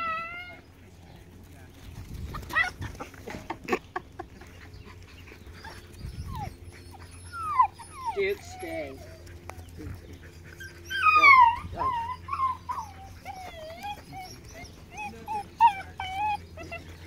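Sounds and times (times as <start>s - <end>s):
dog whining and whimpering: 0.0s - 0.7s, 5.6s - 17.0s.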